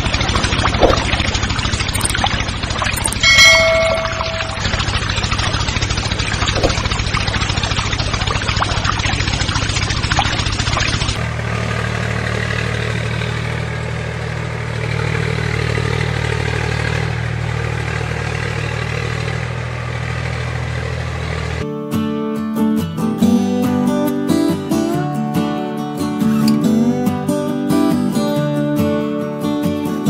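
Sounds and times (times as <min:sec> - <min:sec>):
small engine idling: 0:00.0 - 0:21.6
smooth engine drone: 0:00.0 - 0:21.7.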